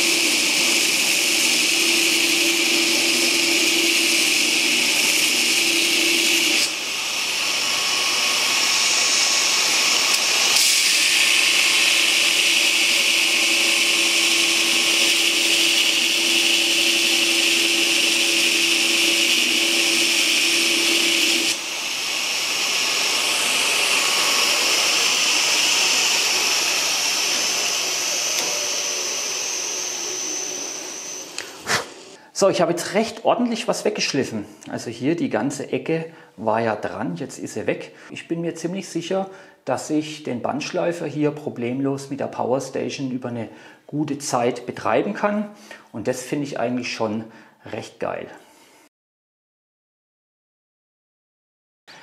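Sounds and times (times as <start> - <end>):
belt grinder grinding steel: 0.0 - 32.2.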